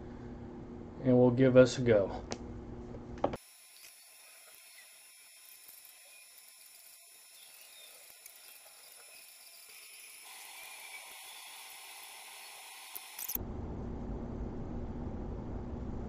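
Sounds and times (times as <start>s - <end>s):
thin high tones: 3.5s - 13.4s.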